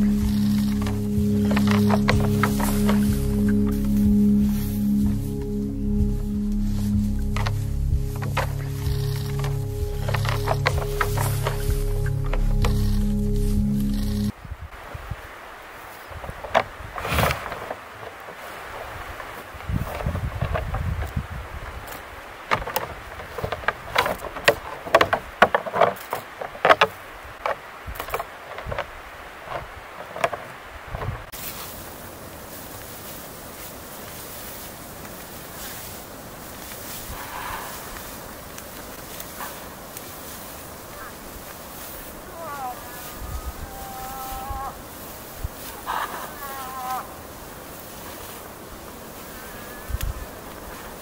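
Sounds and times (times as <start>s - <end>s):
antlers clacking together: 0.0s - 3.7s, 7.4s - 13.1s, 21.8s - 31.1s
moose whining: 0.0s - 14.3s, 16.1s - 31.8s, 33.0s - 51.0s.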